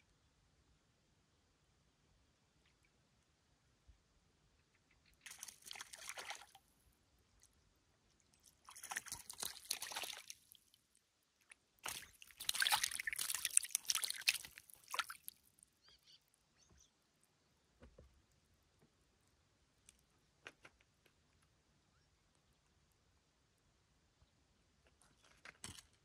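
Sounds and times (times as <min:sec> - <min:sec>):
fish splashing in water: 0:05.2 - 0:06.6, 0:08.6 - 0:10.6, 0:11.8 - 0:15.4.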